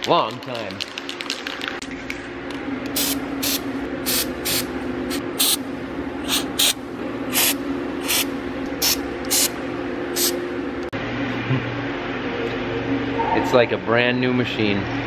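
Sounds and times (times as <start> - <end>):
steady low hum: 1.8 - 15.0
aerosol spray hissing bursts: 3.0 - 4.7, 5.4 - 5.6, 6.3 - 9.5, 10.2 - 10.4.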